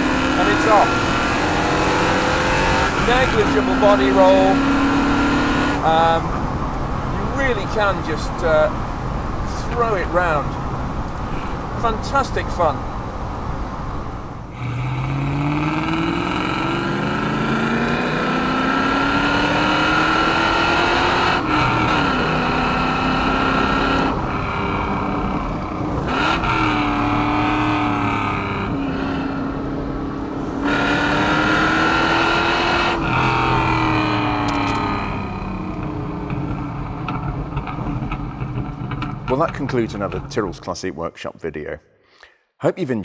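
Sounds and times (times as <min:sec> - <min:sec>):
car engine revving hard: 0:00.0 - 0:06.3, 0:14.5 - 0:39.2
wind noise: 0:23.2 - 0:30.6.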